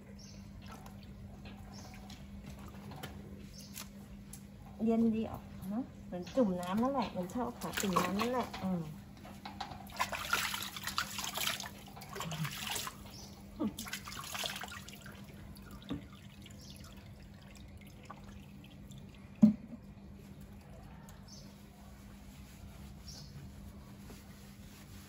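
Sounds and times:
water dripping: 0.5 - 2.8, 9.5 - 20.7
water splashing in plastic tub: 6.6 - 8.9, 9.7 - 19.9.

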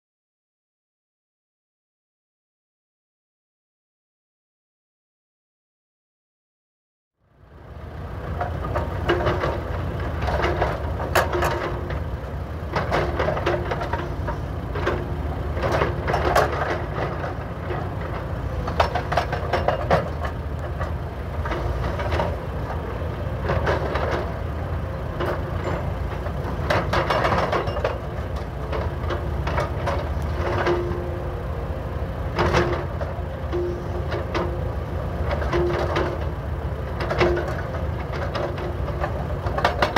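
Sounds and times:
diesel engines running: 7.2 - 39.9
hydraulic breakers hammering asphalt: 8.4 - 31.5, 32.2 - 39.9.

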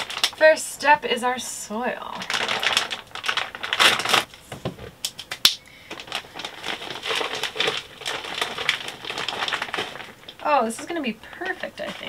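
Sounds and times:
plastic bag crinkling: 0.0 - 0.6, 2.0 - 4.5, 5.7 - 12.0.

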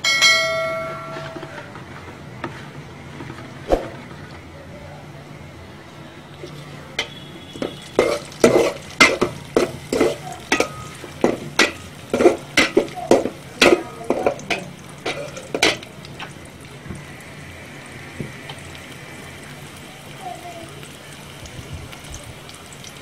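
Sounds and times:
food frying in oil: 1.3 - 23.0
metal spatula scraping pot: 7.0 - 15.8.

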